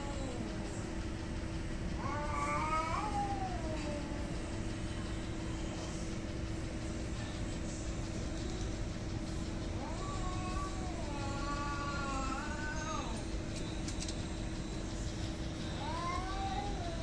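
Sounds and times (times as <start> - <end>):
steady low rumble with hum: 0.0 - 17.0
cat yowling: 9.8 - 13.2, 15.8 - 17.0.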